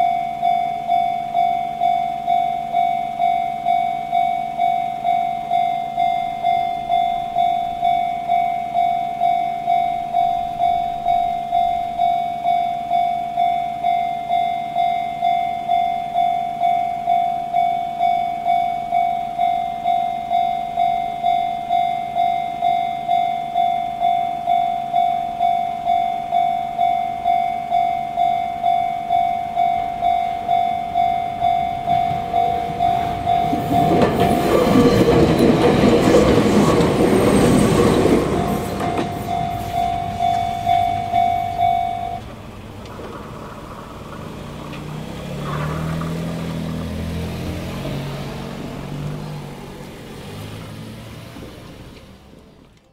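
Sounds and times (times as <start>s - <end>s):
level crossing warning bell: 0.0s - 52.4s
train passing with wheel clatter: 0.0s - 52.9s
car engine: 29.8s - 52.9s.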